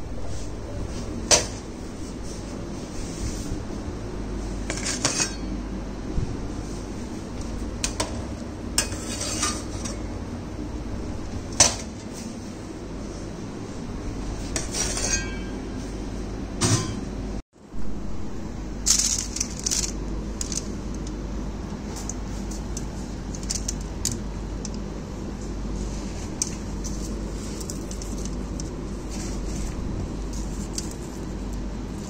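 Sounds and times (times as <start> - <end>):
steady low hum: 0.0 - 32.0
metal trays and utensils clinking: 4.6 - 5.6, 8.8 - 10.1, 14.5 - 15.9, 16.6 - 17.1, 18.8 - 20.7.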